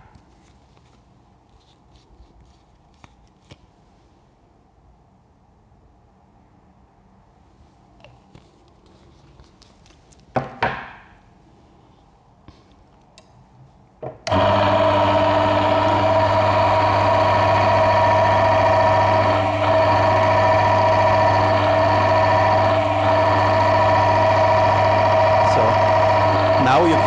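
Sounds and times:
electric motor humming: 14.3 - 27.0
high steady whine: 14.3 - 27.0.

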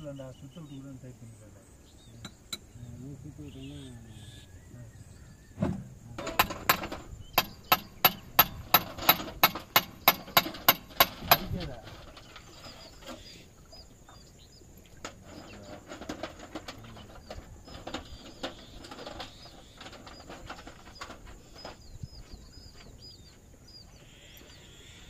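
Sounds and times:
birds chirping: 0.0 - 25.0
hand tools clicking and knocking: 2.2 - 2.7, 6.2 - 13.2, 15.0 - 21.8.

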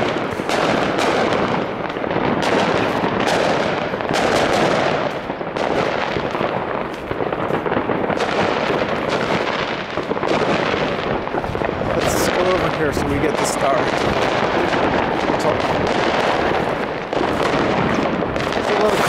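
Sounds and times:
fireworks and firecrackers banging: 0.0 - 19.0.

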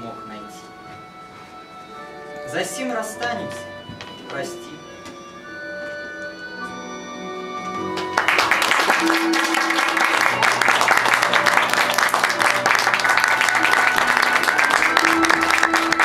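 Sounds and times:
soft background music: 0.0 - 16.0
audience clapping: 7.7 - 16.0.

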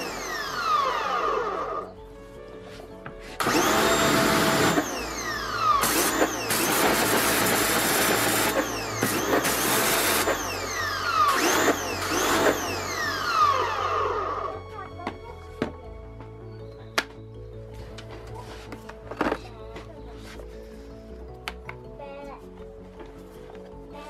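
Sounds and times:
pressure washer motor whine: 0.0 - 2.0, 3.4 - 14.7.

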